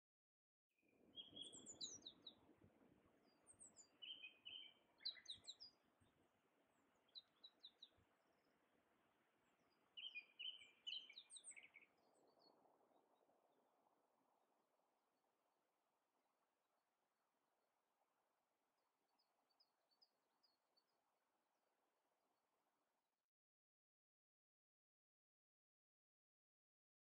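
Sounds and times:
songbird singing: 1.0s - 8.6s, 9.4s - 13.3s.

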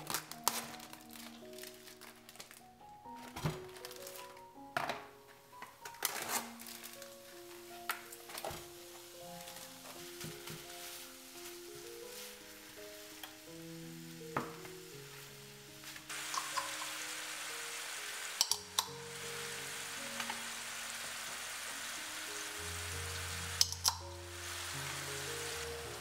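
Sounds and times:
soft background music: 0.0s - 26.0s
steady hiss: 6.4s - 26.0s
spatula clack: 16.3s - 17.0s, 18.4s - 18.9s
eggs clicking into plastic tray: 18.4s - 18.9s.

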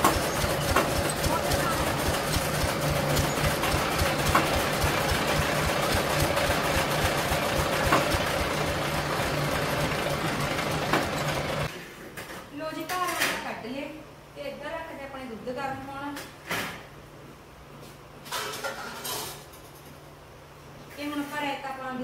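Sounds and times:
chaff cutter running: 0.0s - 11.7s.

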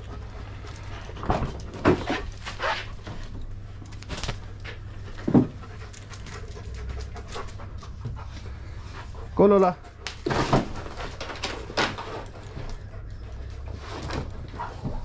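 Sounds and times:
dogs panting: 0.0s - 15.0s.

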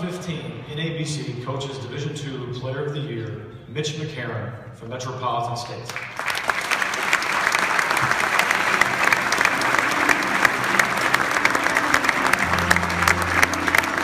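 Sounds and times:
audience applauding: 5.9s - 14.0s
music playing: 7.9s - 14.0s.

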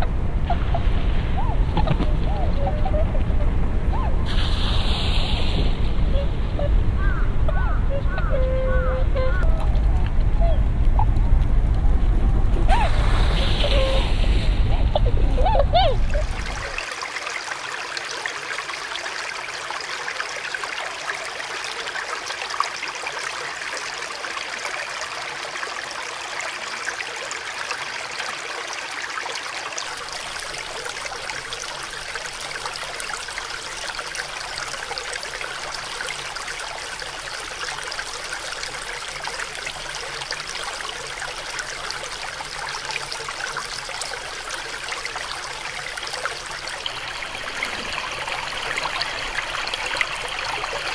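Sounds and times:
stream flowing over rocks: 15.9s - 50.9s.

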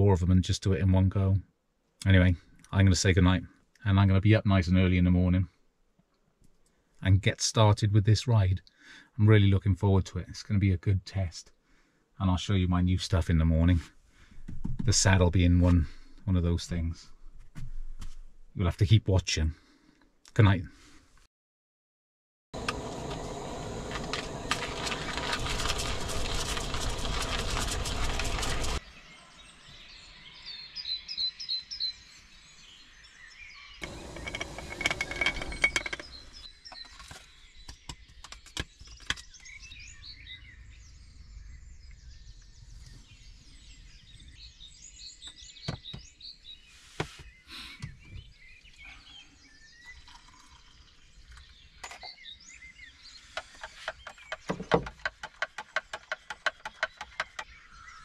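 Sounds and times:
small birds chirping: 22.6s - 58.0s
hand coffee grinder crunching beans: 23.9s - 28.8s
coffee gear clicks and taps: 53.4s - 57.5s.

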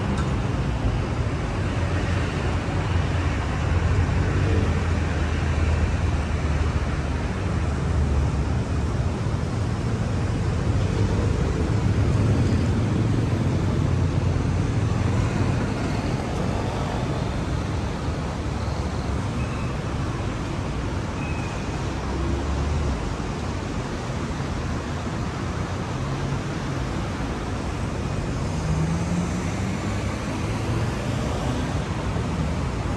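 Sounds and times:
road traffic passing: 0.0s - 32.9s.

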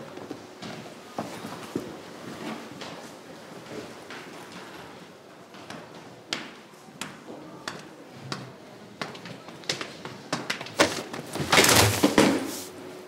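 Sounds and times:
footsteps on hard stairs: 8.3s - 12.5s.

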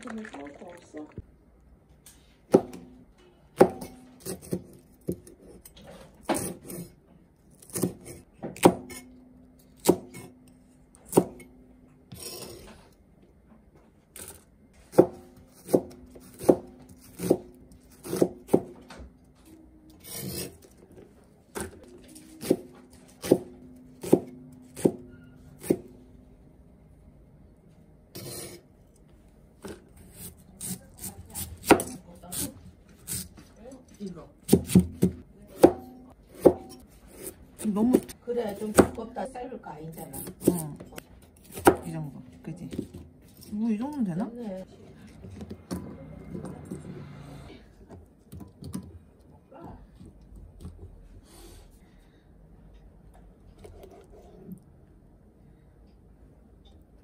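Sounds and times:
knife chopping on cutting board: 3.6s - 5.6s, 6.3s - 6.9s, 7.6s - 9.0s, 9.8s - 10.3s, 14.9s - 19.0s, 22.4s - 25.0s, 29.6s - 32.5s, 34.5s - 39.0s, 40.2s - 41.9s.

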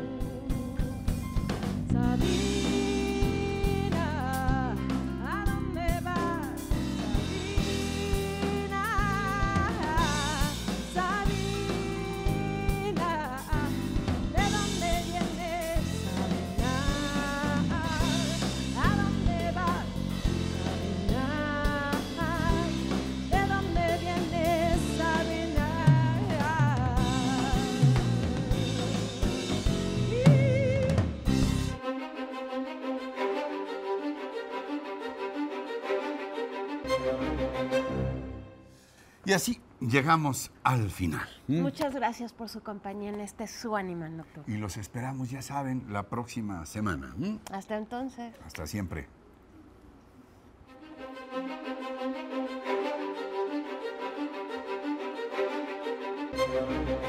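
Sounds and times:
live band playing: 0.0s - 31.8s
woman singing with vibrato: 1.9s - 6.6s, 7.2s - 20.0s, 21.1s - 28.6s, 30.1s - 31.1s
drums keeping a steady beat: 6.5s - 31.8s.

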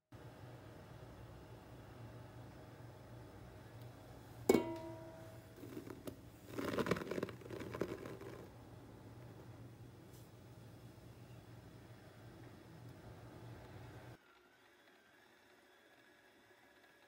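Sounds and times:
metallic knock on steel bowl: 4.5s - 5.4s
flour pouring into bowl: 5.5s - 8.6s.

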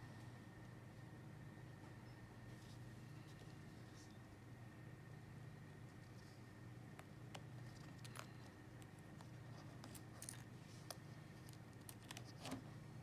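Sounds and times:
faint steady hum: 0.0s - 13.0s
small metal clicks and scrapes: 9.2s - 12.6s.

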